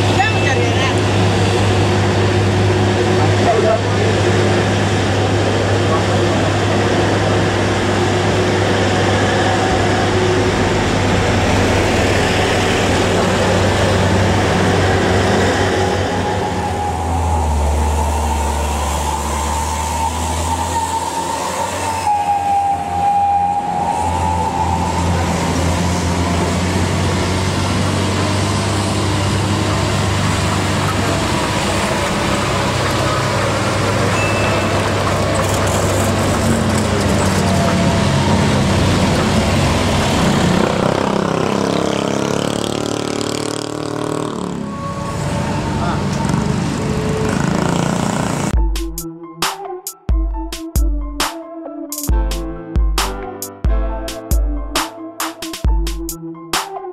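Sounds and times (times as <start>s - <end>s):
diesel truck engines droning: 0.0s - 49.4s.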